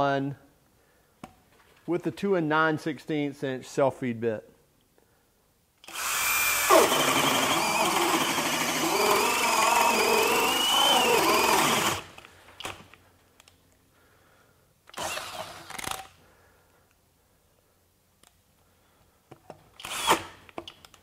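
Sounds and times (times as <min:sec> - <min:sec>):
hammer drill boring into wood: 0:05.8 - 0:12.2, 0:14.9 - 0:16.1, 0:19.8 - 0:20.4.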